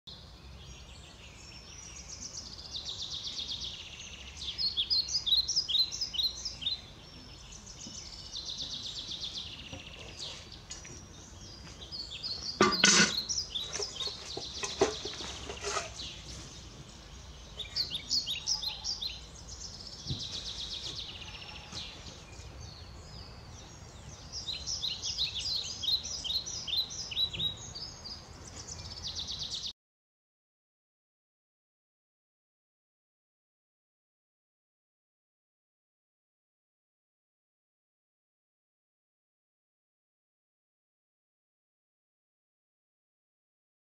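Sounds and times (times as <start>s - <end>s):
songbirds trilling: 0.1s - 29.7s
knocks and rustling: 12.6s - 16.6s.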